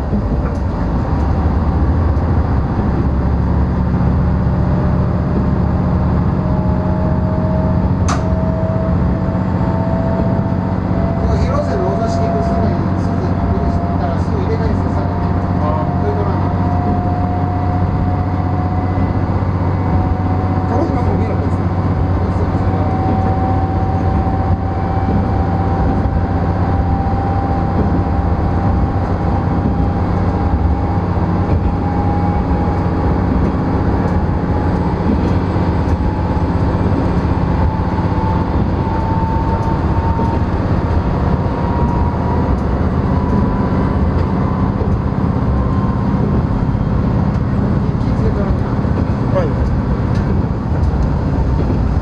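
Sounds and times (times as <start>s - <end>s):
diesel railcar rumble: 0.0s - 52.0s
thin rising whine: 0.0s - 52.0s.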